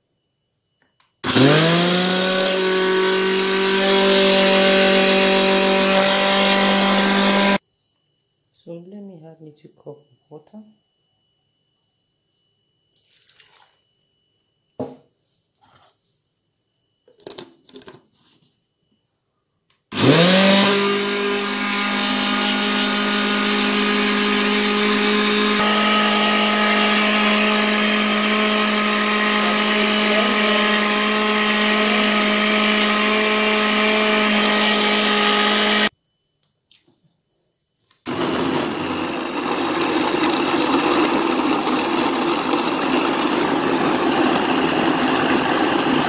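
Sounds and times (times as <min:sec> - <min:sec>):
blender motor running: 0:01.2 - 0:07.6, 0:19.9 - 0:35.9, 0:38.1 - 0:46.0.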